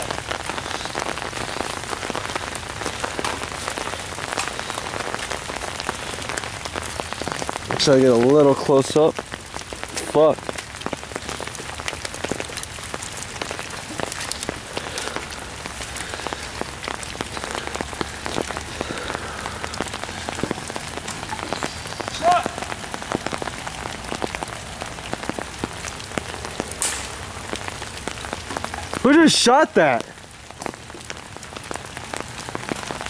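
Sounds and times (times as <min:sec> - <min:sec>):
rain falling on foliage: 0:00.0 - 0:33.0
person shouting: 0:22.1 - 0:22.7.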